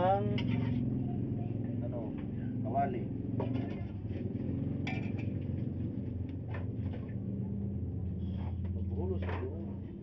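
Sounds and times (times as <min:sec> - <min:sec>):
steady low hum: 0:00.0 - 0:10.0
cookware clinking and knocking: 0:04.8 - 0:05.4.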